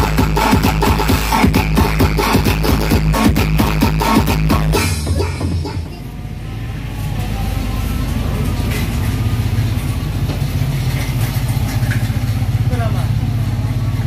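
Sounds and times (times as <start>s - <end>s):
music: 0.0s - 6.4s.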